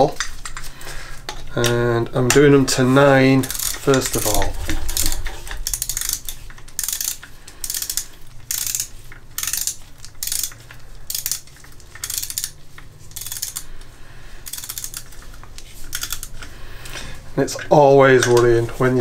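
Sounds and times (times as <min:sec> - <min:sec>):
hand ratchet clicking: 0:03.4 - 0:13.7, 0:14.4 - 0:16.5.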